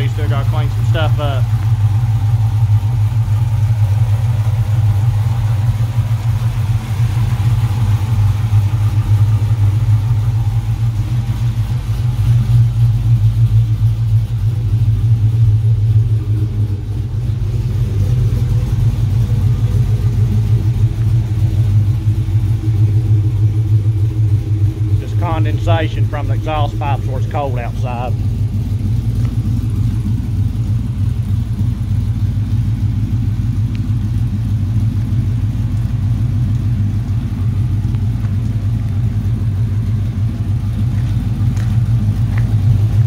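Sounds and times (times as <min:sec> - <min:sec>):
car engine idling: 0:00.0 - 0:43.0.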